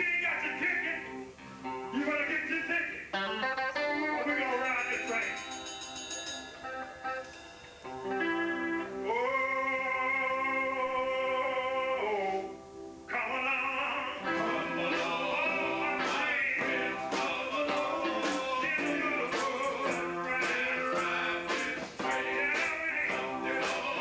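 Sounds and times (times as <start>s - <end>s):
electric guitar: 0.0s - 24.0s
man singing long notes: 8.0s - 24.0s.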